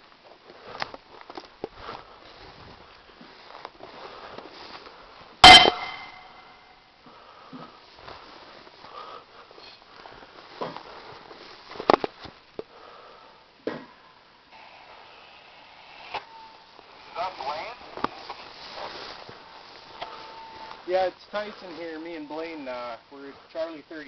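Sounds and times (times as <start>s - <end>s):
faint rustling: 0.0s - 13.3s, 14.6s - 24.0s
sharp metallic bang: 5.4s - 6.7s.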